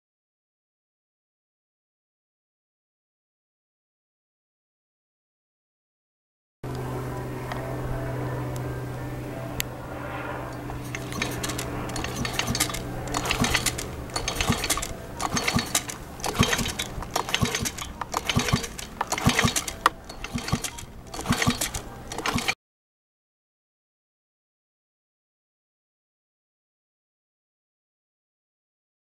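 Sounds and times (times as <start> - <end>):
tool clicking on plastic parts: 10.8 - 22.6.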